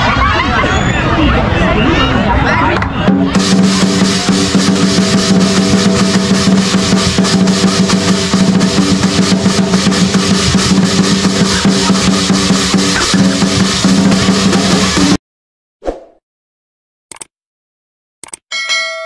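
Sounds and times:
cymbals clashing: 3.1 - 15.2
drum roll: 3.1 - 15.2.

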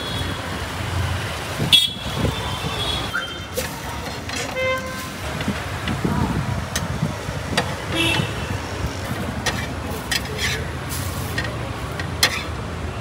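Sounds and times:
street traffic noise: 0.0 - 13.0
vehicle horn tooting: 1.7 - 3.5, 7.9 - 8.6.

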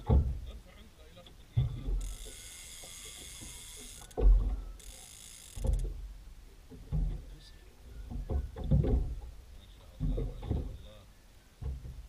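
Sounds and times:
fishing reel ratcheting whir: 2.0 - 4.2, 4.8 - 5.9
dull thumps: 8.1 - 9.3.

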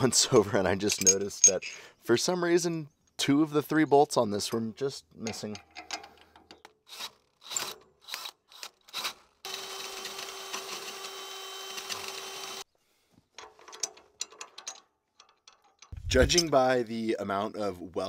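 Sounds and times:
power drill drilling: 8.9 - 12.7.

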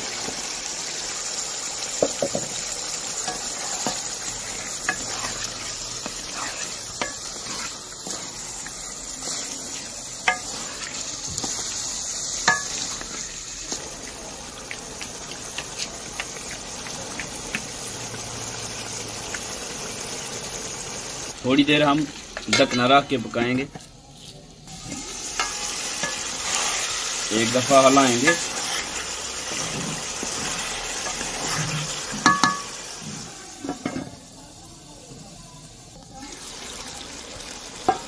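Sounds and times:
vegetables sizzling in oil: 0.0 - 38.0
wooden spatula stirring: 3.2 - 18.2, 25.4 - 32.6.

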